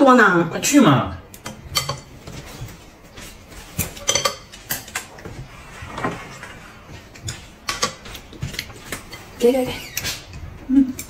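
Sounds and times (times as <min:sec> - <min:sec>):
chopsticks and bowls clinking: 0:01.3 - 0:02.8, 0:03.5 - 0:05.3, 0:06.9 - 0:11.0.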